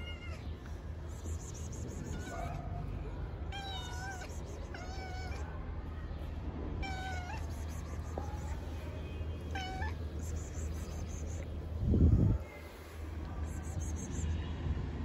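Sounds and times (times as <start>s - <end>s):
cat meowing: 0.0s - 0.6s, 1.9s - 2.6s, 3.3s - 5.6s, 6.8s - 8.7s, 9.4s - 11.5s.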